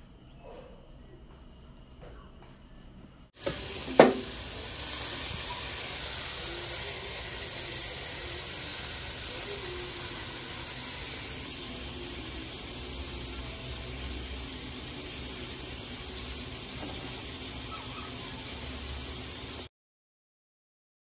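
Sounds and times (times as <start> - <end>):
meat sizzling in a frying pan: 3.4 - 19.7
sharp knock: 3.9 - 4.2.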